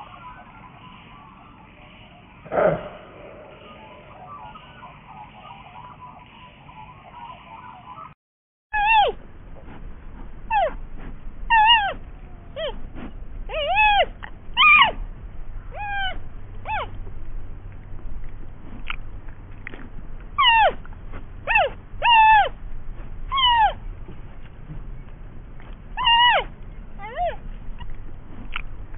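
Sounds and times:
panda cub squeaky calls: 8.8 - 9.2, 11.5 - 12.0, 13.5 - 15.0, 15.7 - 17.0, 20.4 - 20.8, 21.5 - 22.6, 23.3 - 23.8, 26.0 - 27.9.

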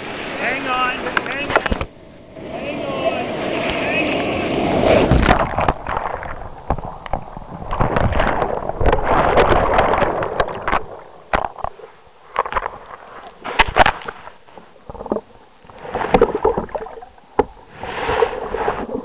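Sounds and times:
churning rushing surf: 0.0 - 12.4
knocks and scrapes on pebbles: 4.9 - 15.3.

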